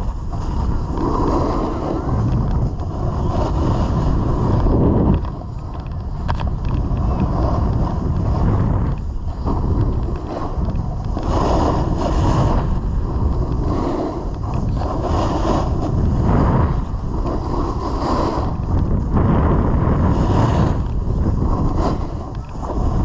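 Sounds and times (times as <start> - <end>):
snowboard scraping over snow: 0.0 - 23.0
wind buffeting microphone: 0.0 - 23.0.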